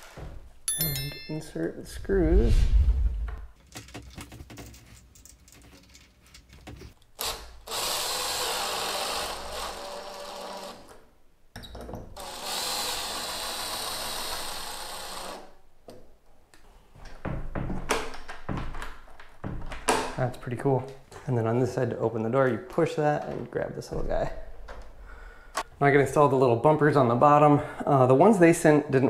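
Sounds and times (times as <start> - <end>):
cordless drill driving screws: 7.2 - 11.0, 12.2 - 15.5.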